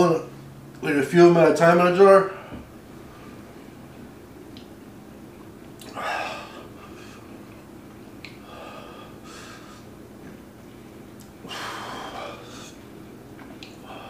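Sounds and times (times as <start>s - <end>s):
man breathing hard: 5.9s - 7.4s, 8.4s - 10.0s, 11.4s - 12.8s, 13.8s - 14.0s.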